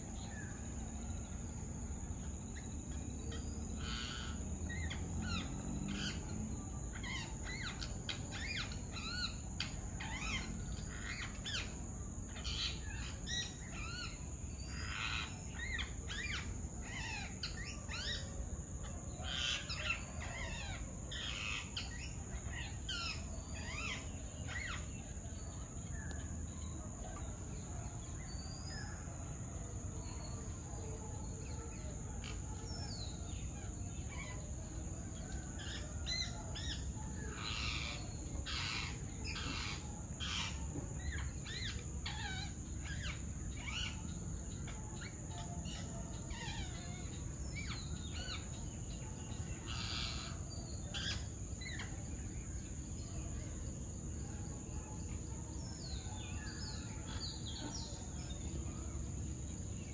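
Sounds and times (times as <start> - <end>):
birds chirping and calling: 2.2 - 29.4, 30.0 - 53.4.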